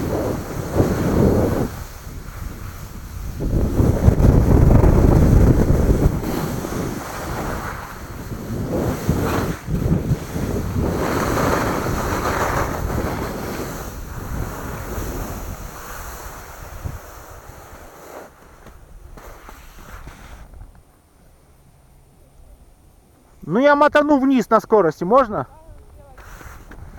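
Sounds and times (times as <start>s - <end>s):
wind buffeting microphone: 0.0s - 17.9s
skis scraping over snow: 0.0s - 20.8s, 25.1s - 26.9s.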